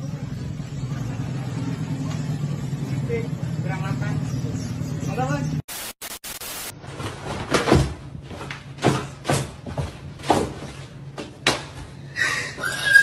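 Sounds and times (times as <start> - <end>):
tv static burst: 5.7 - 6.7.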